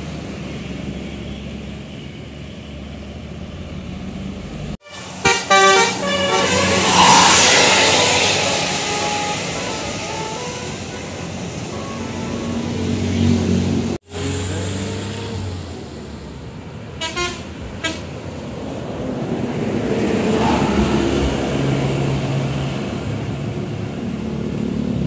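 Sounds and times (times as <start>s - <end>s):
bus engine passing: 0.0s - 25.0s
bus horn toots: 4.8s - 13.8s, 17.0s - 18.2s.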